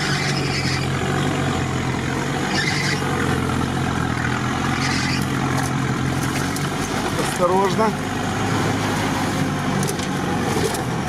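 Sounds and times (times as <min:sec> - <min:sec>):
engine running at low revs: 0:00.0 - 0:11.0
branches scraping vehicle body: 0:04.0 - 0:11.0.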